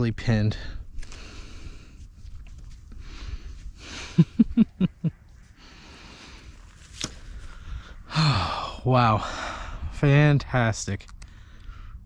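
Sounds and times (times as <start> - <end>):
man breathing out heavily: 1.0 - 2.0, 3.0 - 4.3, 5.6 - 9.9
man chuckling: 3.9 - 5.2.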